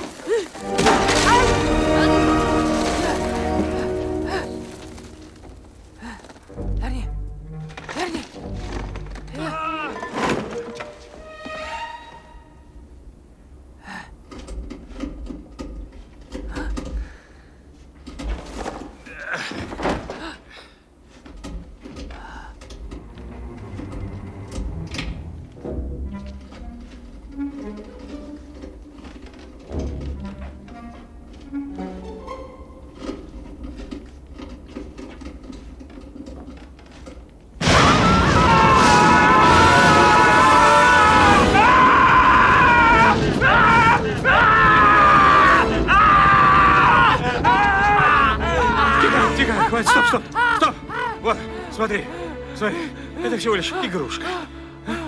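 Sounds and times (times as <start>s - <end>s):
knocks and scuffling: 0.0s - 6.8s, 7.6s - 11.6s, 14.3s - 31.8s, 32.8s - 37.8s
faint creaks and clicks: 14.1s - 31.8s
wooden boards creaking: 18.0s - 20.3s.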